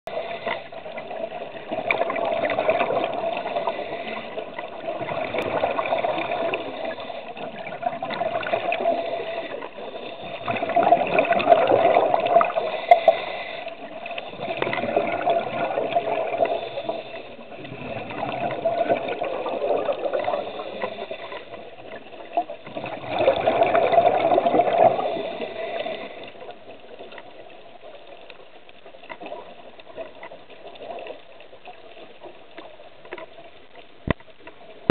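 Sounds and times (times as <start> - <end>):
diver breathing: 0.1 - 0.8, 3.3 - 4.6, 8.6 - 10.8, 12.4 - 14.8, 16.2 - 17.5, 20.2 - 21.6
regulator bubbling underwater: 0.1 - 34.9.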